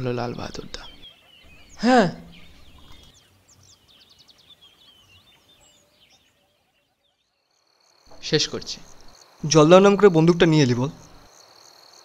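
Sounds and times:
faint birds chirping: 0.0 - 12.0.

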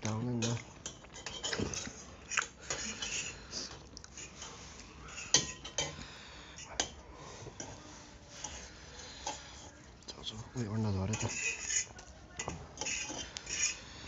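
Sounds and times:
cutlery clinking on metal plates: 0.3 - 4.5, 5.1 - 6.0, 10.8 - 13.8.

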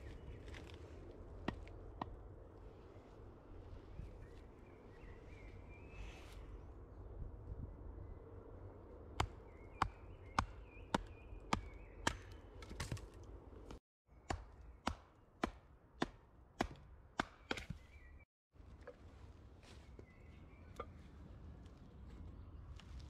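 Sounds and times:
axe chopping wood: 9.2 - 17.9.

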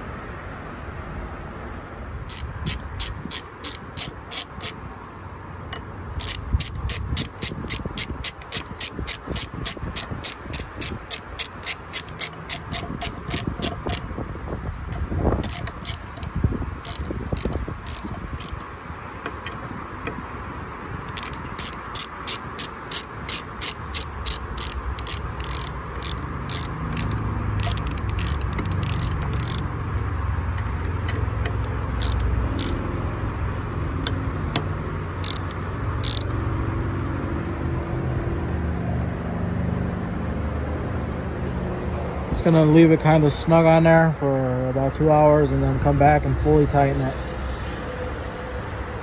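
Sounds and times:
hand ratchet clicking: 2.3 - 5.0, 5.7 - 14.2, 14.9 - 20.2, 21.0 - 29.7, 30.5 - 32.9, 34.0 - 36.4.

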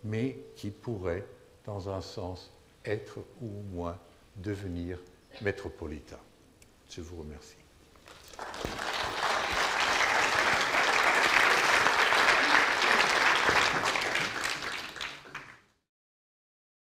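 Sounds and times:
audience applauding: 8.1 - 15.7.

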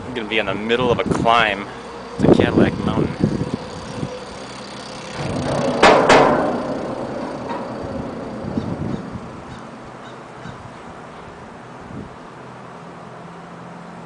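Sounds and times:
vehicle passing by: 0.0 - 11.6
sharp knocks: 5.1 - 10.2.

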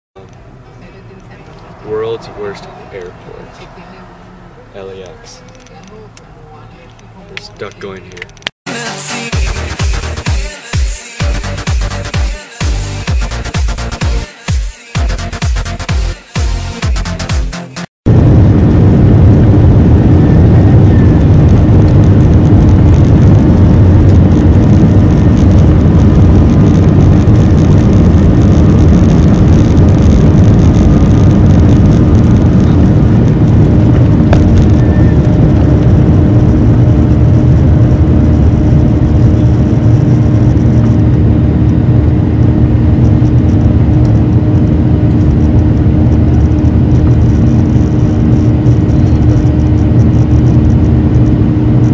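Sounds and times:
jet engines from inside cabin: 0.2 - 7.8, 18.1 - 51.9
steady hum: 0.2 - 8.5, 18.1 - 51.9.

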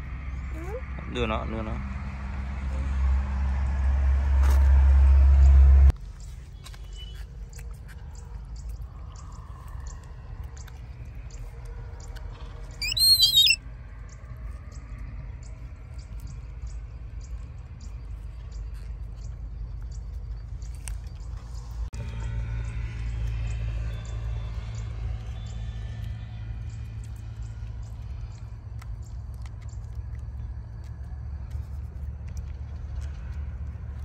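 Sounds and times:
monkey chewing corn: 12.8 - 13.6, 26.9 - 34.0
monkey squealing: 12.8 - 13.6.

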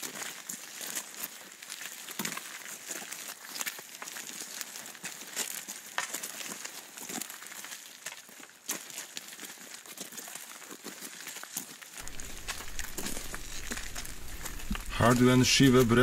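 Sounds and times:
rustling and crackling: 12.0 - 16.0
sharp clicks: 12.0 - 16.0
steady hiss: 12.0 - 16.0.

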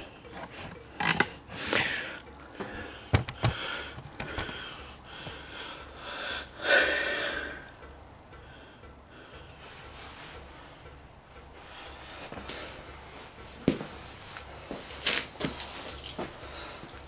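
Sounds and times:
phone handling clicks and knocks: 0.4 - 1.4, 2.6 - 4.6
person breathing: 1.4 - 13.3, 16.0 - 17.0.

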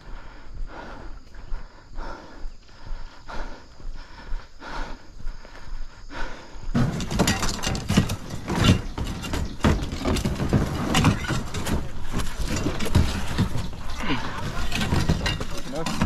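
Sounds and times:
scuffs and knocks on rocks: 6.8 - 16.0.

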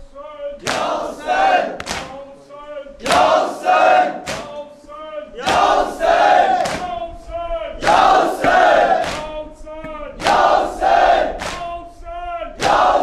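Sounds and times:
chest beating slaps: 0.6 - 1.0, 1.7 - 2.2, 3.0 - 3.4, 4.1 - 4.7, 5.4 - 5.8, 6.5 - 7.0, 7.8 - 10.6, 11.3 - 11.8, 12.6 - 13.0
men chanting in unison: 0.6 - 1.8, 2.8 - 6.9, 7.5 - 13.0.

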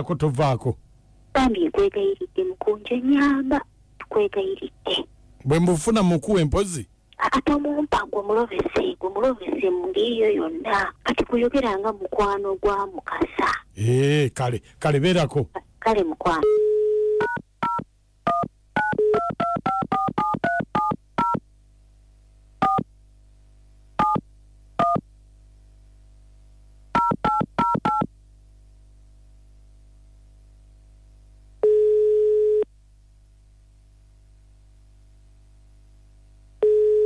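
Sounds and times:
telephone ringing tone: 16.4 - 17.4, 31.6 - 32.7, 36.6 - 37.0.

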